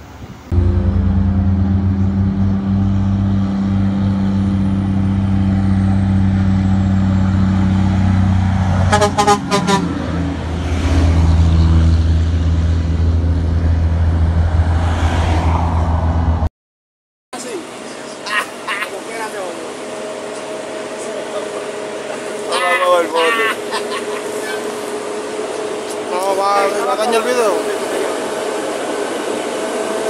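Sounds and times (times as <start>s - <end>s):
diesel truck engine running: 0.4s - 14.7s, 17.4s - 30.0s
truck horn toots: 0.5s - 5.4s, 8.8s - 10.2s.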